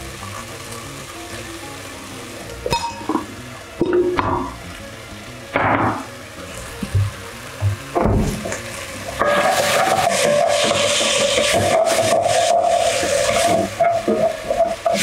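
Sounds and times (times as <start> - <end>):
vegetables frying in oil: 0.0 - 15.0
spatula scraping a pot: 9.2 - 15.0.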